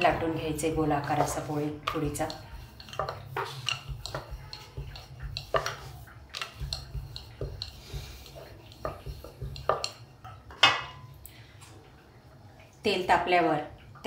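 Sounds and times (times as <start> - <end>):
rolling pin knocking on board: 0.0 - 9.9.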